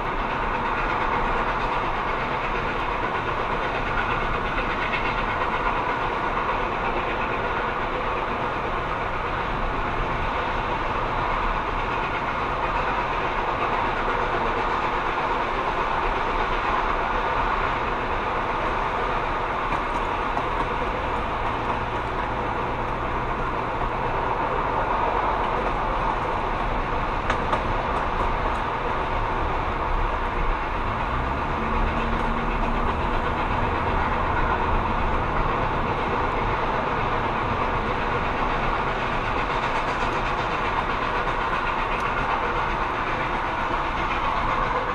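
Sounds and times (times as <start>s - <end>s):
passenger train rumble: 0.0s - 44.9s
car road and wind noise: 19.6s - 39.4s.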